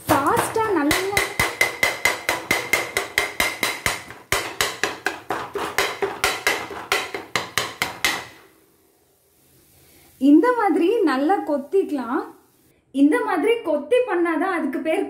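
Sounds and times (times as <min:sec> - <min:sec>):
metal tumbler chopping on griddle: 0:00.0 - 0:08.4.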